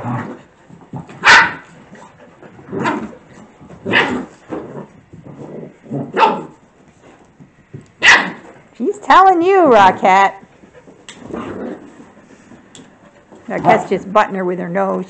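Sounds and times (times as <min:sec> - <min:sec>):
puppies barking and yipping: 0:01.2 - 0:01.8.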